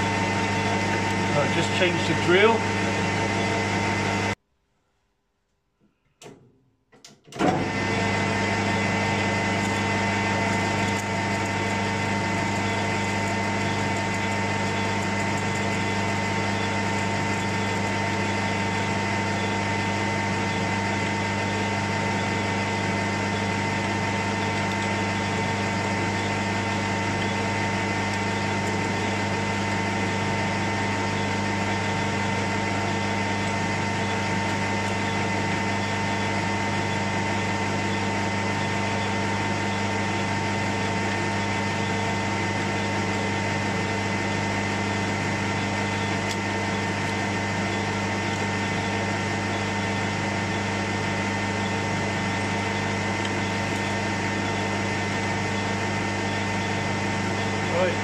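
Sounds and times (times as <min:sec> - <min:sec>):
drill boring into brass: 0:00.0 - 0:04.0, 0:07.7 - 0:58.0
lathe humming and whining: 0:00.0 - 0:04.4, 0:07.4 - 0:58.0.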